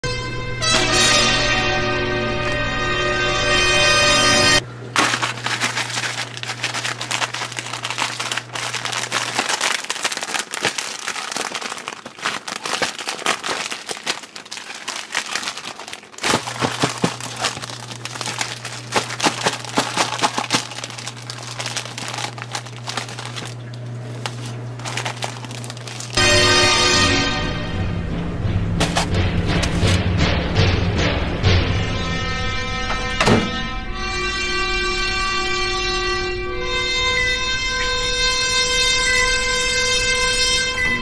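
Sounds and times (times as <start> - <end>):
steady low hum: 4.6 - 26.4
cellophane box crinkling: 5.0 - 26.2, 28.8 - 30.0.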